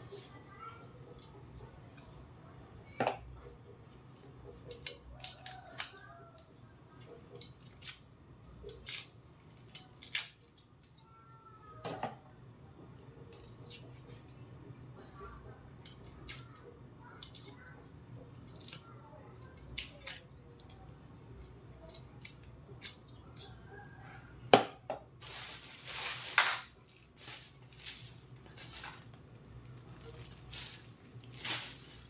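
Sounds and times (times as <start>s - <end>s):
knife clicking and scraping garlic: 1.1s - 2.2s, 4.2s - 11.1s, 13.3s - 14.3s, 15.8s - 16.6s, 17.2s - 23.6s
garlic skin snapping: 4.7s - 6.5s, 8.7s - 10.4s.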